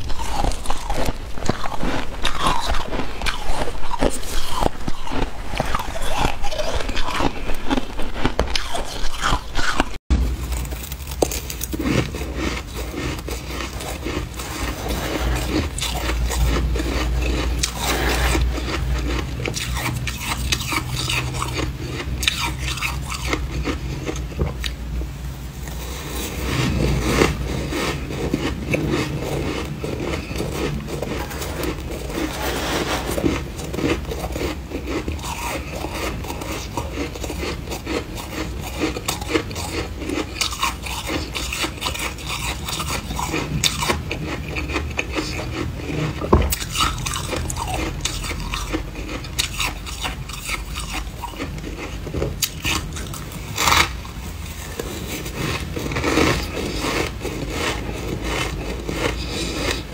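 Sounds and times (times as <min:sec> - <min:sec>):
person chewing and crunching frost: 0:00.0 - 0:59.9.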